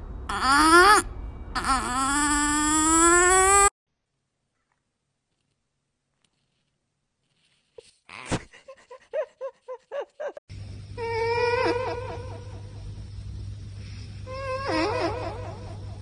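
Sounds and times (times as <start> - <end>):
steady low hum: 10.3 - 16.0.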